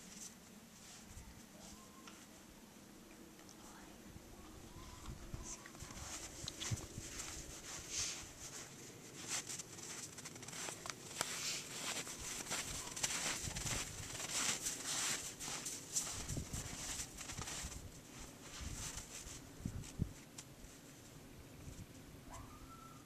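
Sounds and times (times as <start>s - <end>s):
footsteps crunching through snow: 5.5s - 21.1s.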